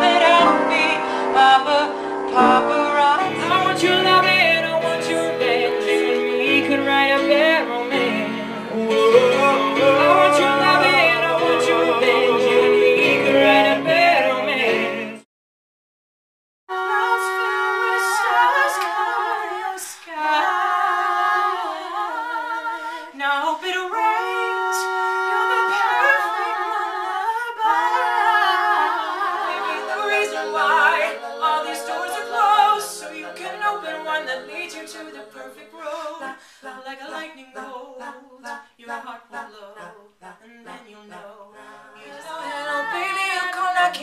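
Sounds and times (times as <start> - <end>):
voices singing a cappella: 0.0 - 15.3, 16.7 - 44.0.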